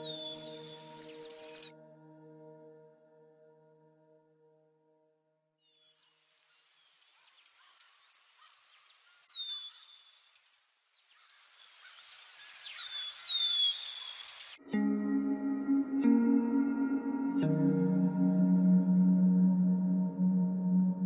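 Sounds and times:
bird whistled calls: 0.0 - 1.7, 5.7 - 14.6
insects chirping in rapid trill: 6.7 - 14.6.

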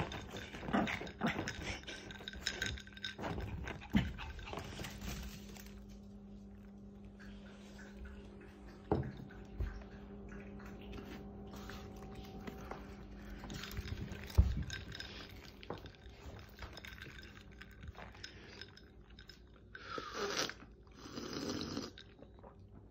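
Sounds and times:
dog gnawing a toy: 0.0 - 5.4.

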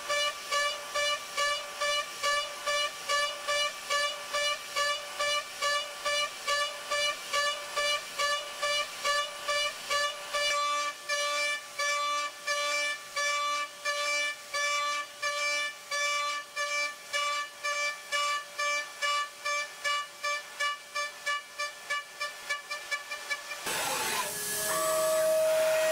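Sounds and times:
milling spindle whine: 23.7 - 25.9.

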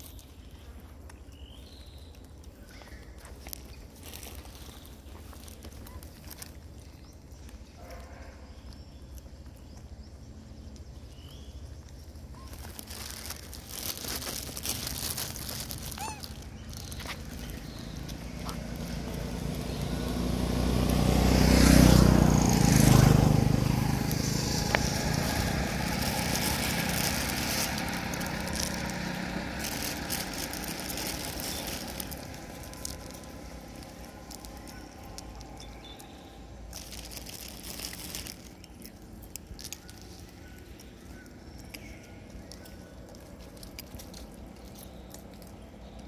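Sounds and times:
motor vehicle passing: 12.4 - 46.0.

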